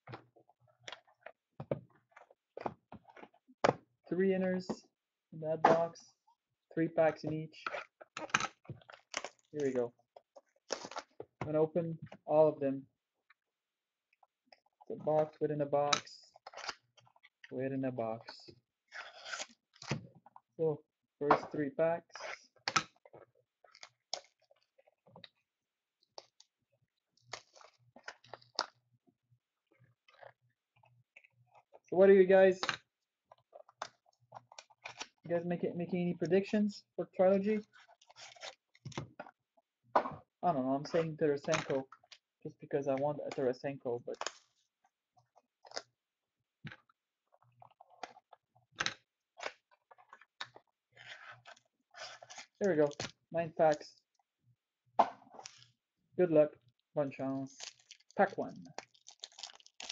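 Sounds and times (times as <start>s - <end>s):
card packs crinkling and clicking: 47.7s - 53.9s, 57.4s - 59.9s
card packs crinkling: 57.4s - 59.9s.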